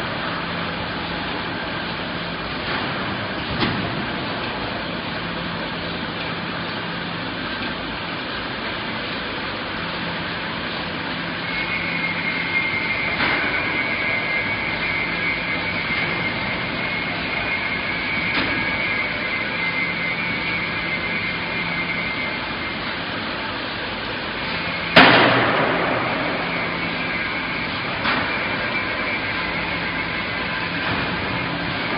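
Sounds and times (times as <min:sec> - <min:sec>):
high whine: 0:00.0 - 0:31.9.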